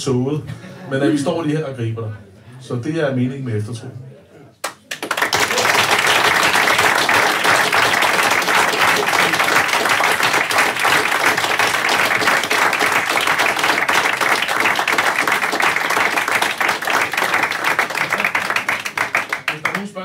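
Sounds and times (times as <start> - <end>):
audience applauding: 4.6 - 20.0.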